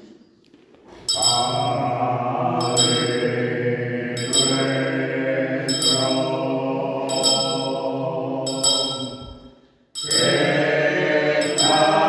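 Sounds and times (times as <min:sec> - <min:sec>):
handbell strikes: 0:01.1 - 0:01.8, 0:02.6 - 0:03.3, 0:04.2 - 0:04.8, 0:05.7 - 0:06.4, 0:07.1 - 0:10.6, 0:11.4 - 0:12.0
men singing unaccompanied chant: 0:01.1 - 0:09.2, 0:10.0 - 0:12.0.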